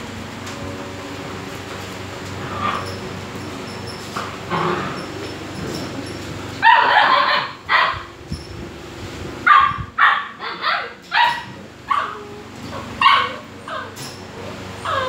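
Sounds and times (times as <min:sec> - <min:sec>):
dog yelping: 0:06.6 - 0:08.1, 0:09.5 - 0:15.0
young dogs barking and yipping: 0:06.6 - 0:08.2, 0:09.4 - 0:15.0.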